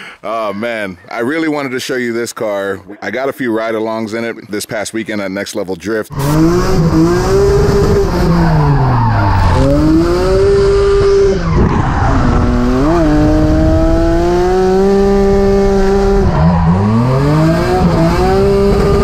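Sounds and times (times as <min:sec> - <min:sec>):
car engine revving: 0:06.1 - 0:19.0.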